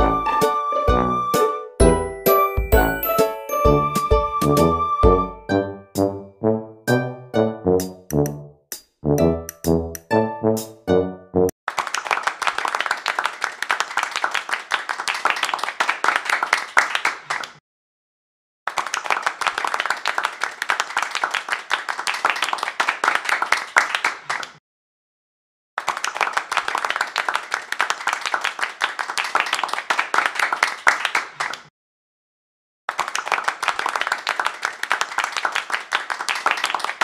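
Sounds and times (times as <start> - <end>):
applause: 2.4 - 4.6, 11.7 - 17.6, 18.7 - 24.6, 25.8 - 31.7, 32.9 - 37.0.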